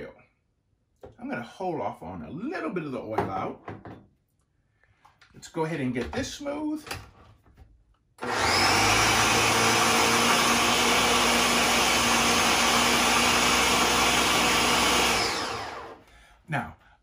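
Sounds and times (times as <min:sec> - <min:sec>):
blender running: 0:08.2 - 0:16.1.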